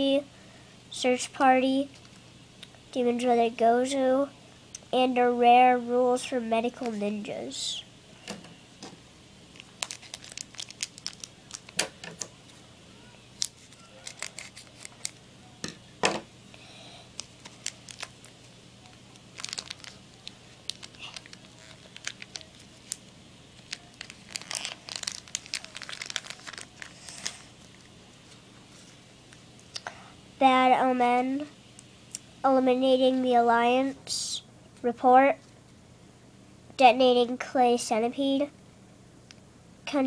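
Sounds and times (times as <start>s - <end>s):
wrapper crinkling and tearing: 9.5s - 12.2s, 13.4s - 15.2s, 17.1s - 27.9s.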